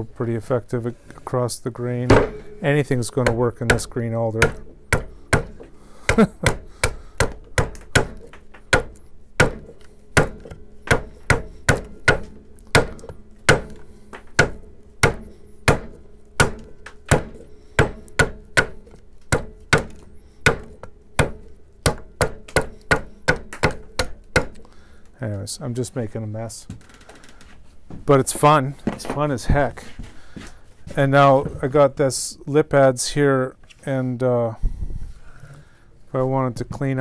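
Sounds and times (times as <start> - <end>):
adze chopping wood: 2.1 - 2.6, 3.2 - 24.6.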